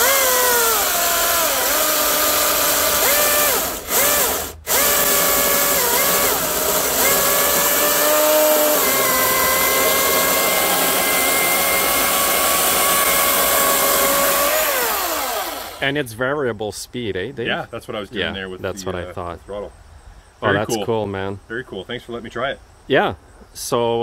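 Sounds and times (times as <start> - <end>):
electric chainsaw motor whining: 0.0 - 15.9, 20.5 - 20.7.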